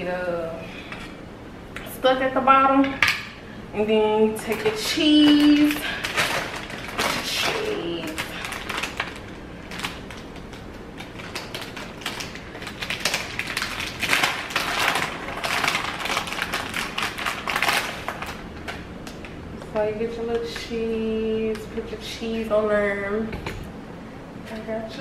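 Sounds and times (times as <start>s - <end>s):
plastic bag crinkling: 4.5s - 19.4s.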